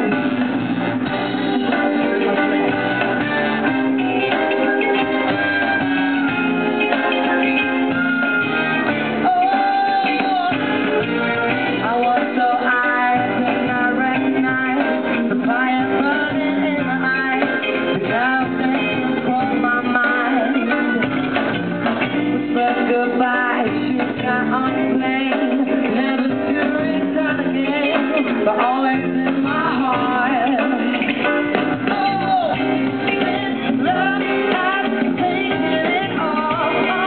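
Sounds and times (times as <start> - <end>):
band with piano and guitar: 0.0 - 37.0
man singing into microphone: 9.2 - 10.8, 11.8 - 21.4, 22.4 - 37.0.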